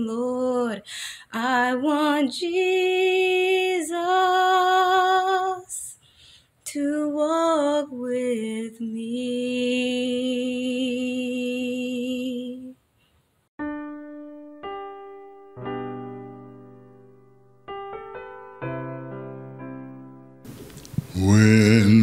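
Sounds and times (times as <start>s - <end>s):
woman singing unaccompanied: 0.0s - 6.0s, 6.6s - 12.8s
piano notes and chord: 13.6s - 20.6s.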